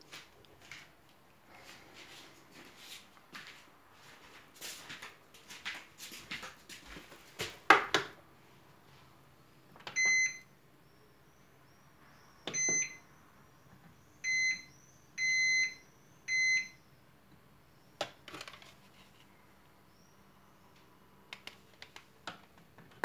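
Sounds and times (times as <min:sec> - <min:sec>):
microwave beeping: 0:09.8 - 0:10.6, 0:12.4 - 0:13.1, 0:14.2 - 0:16.8.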